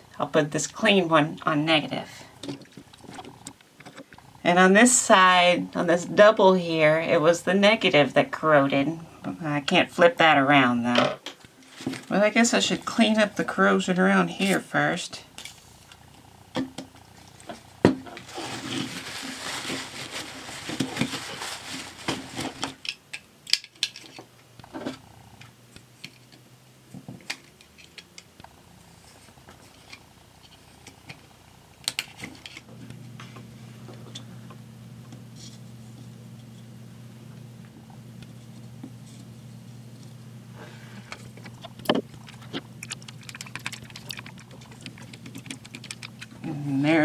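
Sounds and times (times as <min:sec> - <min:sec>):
steady low hum: 0:24.3 - 0:47.0.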